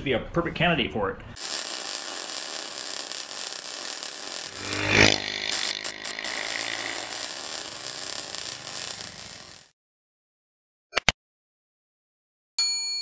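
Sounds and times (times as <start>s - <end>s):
steady rushing noise: 1.4s - 9.7s.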